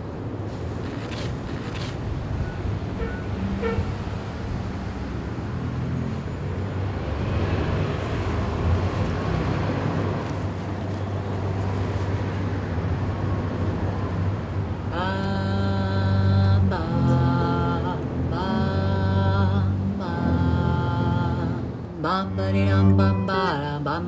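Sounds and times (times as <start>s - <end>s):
rumble of passing vehicles: 0.0s - 24.0s.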